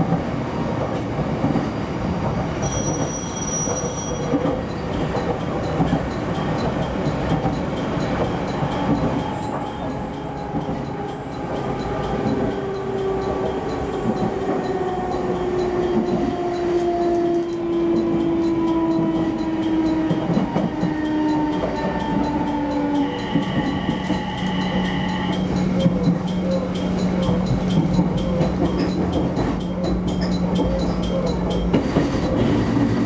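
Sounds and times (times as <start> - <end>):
train wheel and rail rumble: 0.0 - 33.0
steady tones: 9.0 - 15.9
train motor whine: 9.0 - 15.9.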